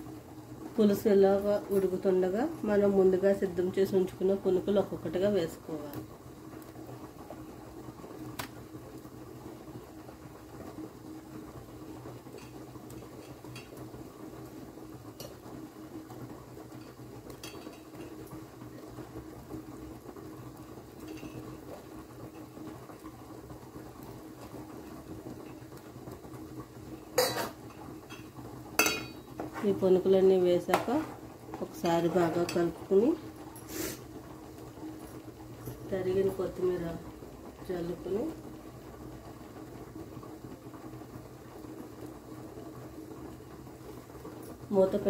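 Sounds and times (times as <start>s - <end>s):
broth simmering in metal pot: 0.0s - 45.0s.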